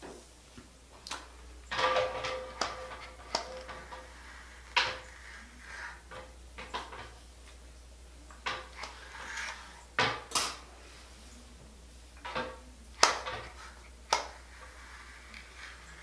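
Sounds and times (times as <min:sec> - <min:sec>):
hair rustling: 0:13.3 - 0:16.0.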